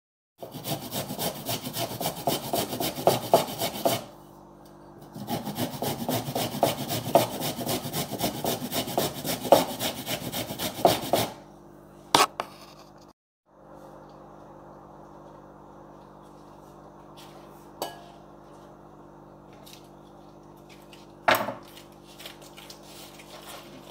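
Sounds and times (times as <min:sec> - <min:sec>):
carrot grated on metal grater: 0:00.4 - 0:04.1, 0:05.2 - 0:11.4.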